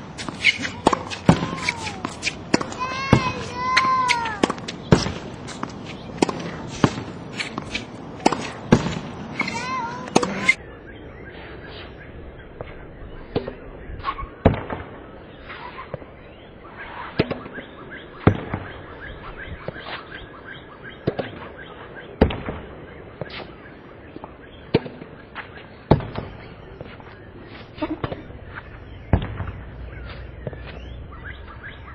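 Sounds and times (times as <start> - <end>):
tennis ball hitting racket and backboard: 0.0 - 10.6
quieter ball knocks: 0.2 - 10.6.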